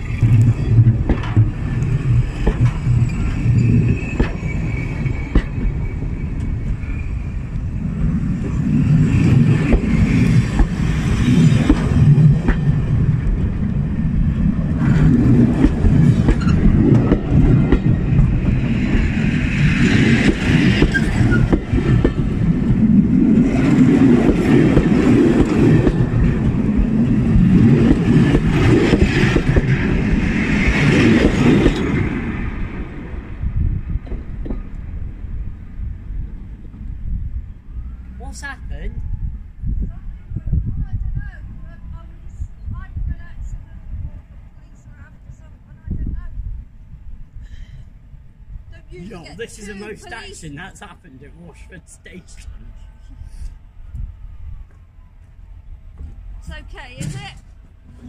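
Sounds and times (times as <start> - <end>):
train wheels rumbling on rails: 0.0 - 38.2
high-pitched wheel squeal: 2.6 - 7.8, 16.3 - 16.8, 20.7 - 21.7.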